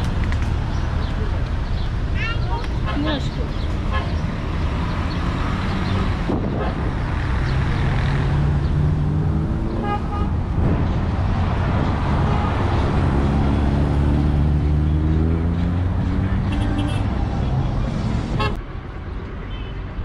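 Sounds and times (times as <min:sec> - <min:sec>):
vehicle engines running: 0:00.0 - 0:18.6
car horn beeps: 0:09.8 - 0:10.3, 0:16.4 - 0:17.1.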